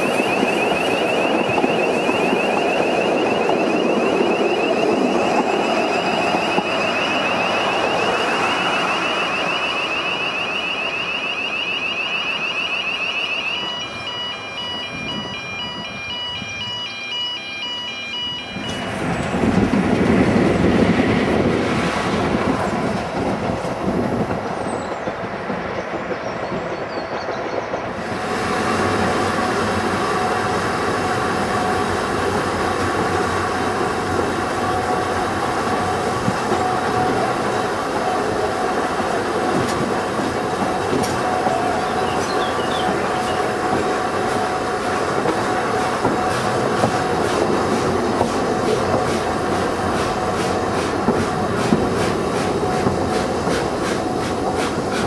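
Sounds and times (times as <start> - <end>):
electronic warning alarm: 0.0 - 19.2
railway coaches rolling on rails: 0.0 - 55.0
ride noise inside moving coach: 0.0 - 55.0.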